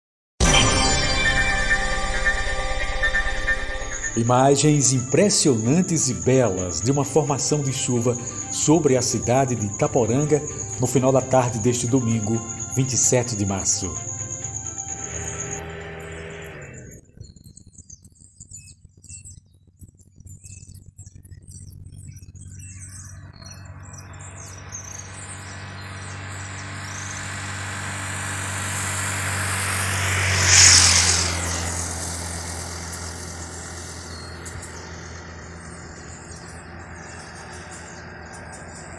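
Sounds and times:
birds and insects chirping: 0:00.4 - 0:38.9
vehicle passing by: 0:01.8 - 0:17.0, 0:23.6 - 0:38.9.

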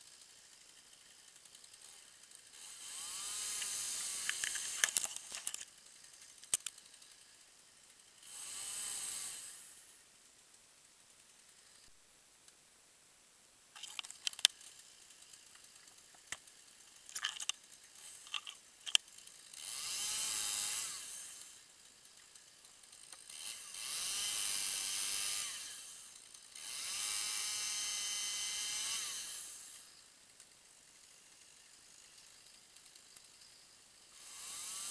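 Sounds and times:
chainsaw revving: 0:00.0 - 0:10.0, 0:13.8 - 0:30.0, 0:31.0 - 0:33.4, 0:34.1 - 0:34.9
sharp clicks and snaps: 0:03.6 - 0:07.0, 0:13.8 - 0:19.2.

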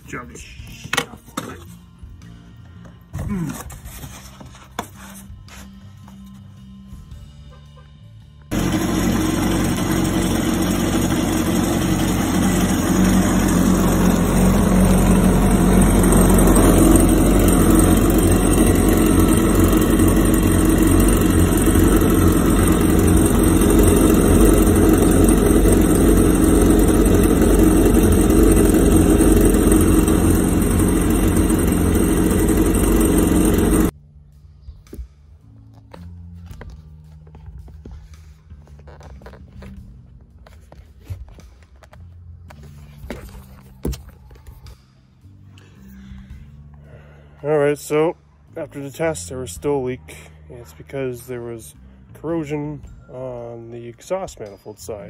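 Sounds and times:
jet ski engine idling: 0:08.5 - 0:33.9.

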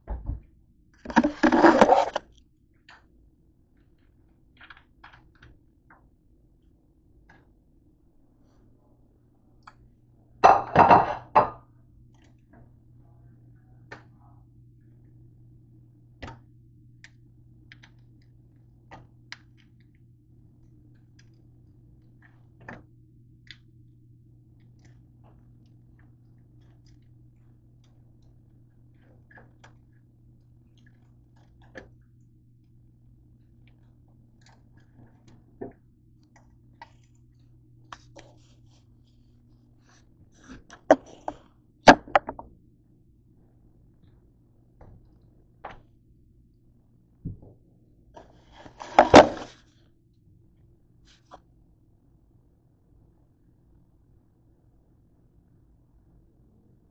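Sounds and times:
kitchen utensils clattering: 0:10.5 - 0:11.5.

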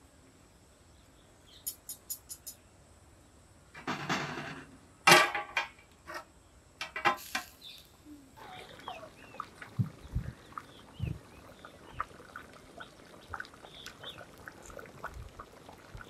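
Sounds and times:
ladle clinking on metal: 0:01.7 - 0:02.6.

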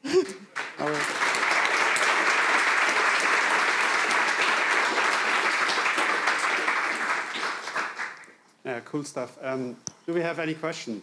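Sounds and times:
audience applauding: 0:00.4 - 0:08.4.

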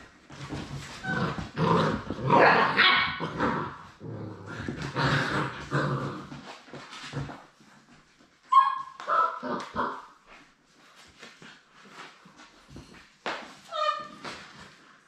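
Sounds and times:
puppies barking and growling: 0:00.8 - 0:07.4, 0:08.5 - 0:10.2.

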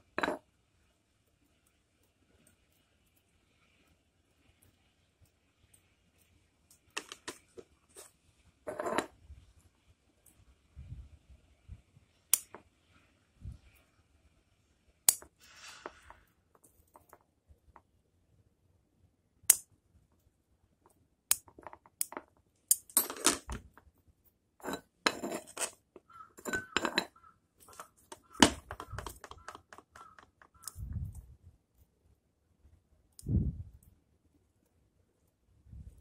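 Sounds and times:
tools clicking and clinking: 0:06.7 - 0:07.5, 0:21.3 - 0:23.9, 0:24.6 - 0:30.8.

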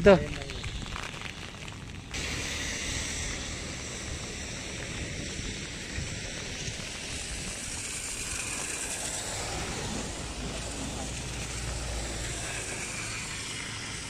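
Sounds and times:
rain falling on water: 0:00.0 - 0:02.2
wind rumble on microphone: 0:00.0 - 0:14.0.

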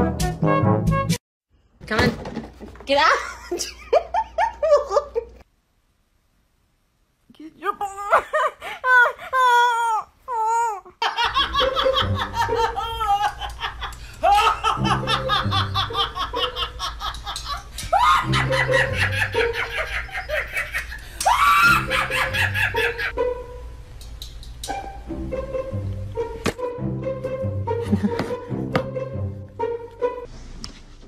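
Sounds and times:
woman laughing hard: 0:03.4 - 0:05.4, 0:07.8 - 0:23.2, 0:27.8 - 0:28.5
person wailing cry: 0:07.6 - 0:11.0, 0:12.6 - 0:13.6, 0:17.9 - 0:18.5, 0:21.2 - 0:22.7.

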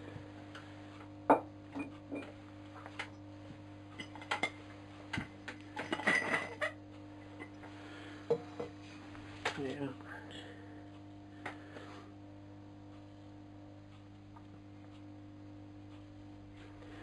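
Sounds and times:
faint steady hum: 0:00.0 - 0:17.0
ceramic pots knocking and clinking: 0:01.3 - 0:02.3, 0:05.8 - 0:06.8.

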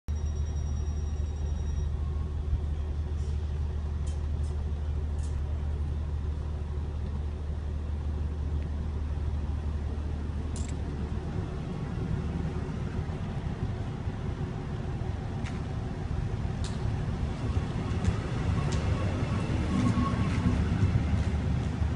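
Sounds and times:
electric train humming: 0:00.1 - 0:21.9
train wheels rolling: 0:10.5 - 0:21.9.

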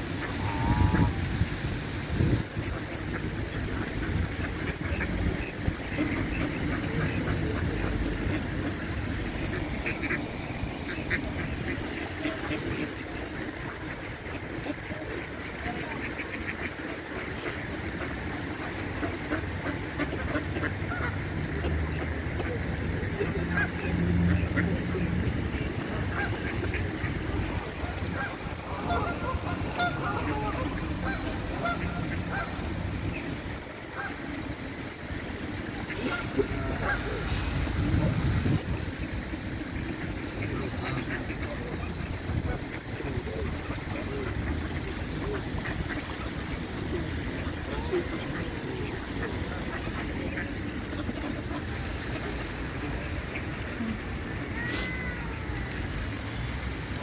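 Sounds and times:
geese honking: 0:00.0 - 0:01.3, 0:02.6 - 0:37.5
ducks quacking: 0:00.0 - 0:57.0.

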